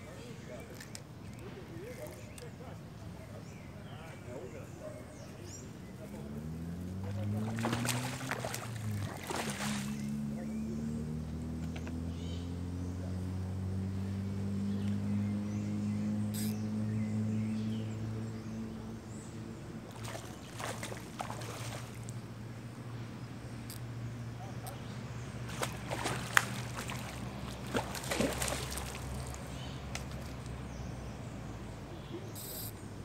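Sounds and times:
fish splashing in water: 6.4 - 10.3, 19.8 - 22.2, 25.3 - 30.7.

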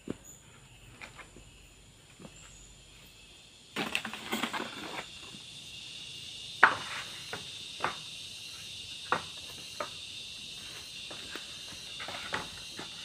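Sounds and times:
high insect drone: 0.0 - 13.0
bamboo poles clattering: 3.8 - 5.3, 11.1 - 13.0.

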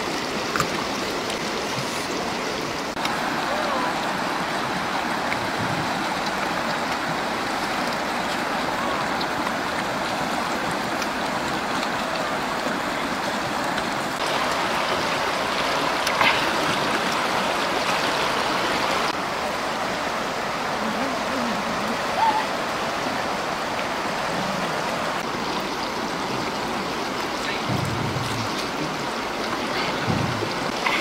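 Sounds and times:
running water: 0.0 - 31.0.

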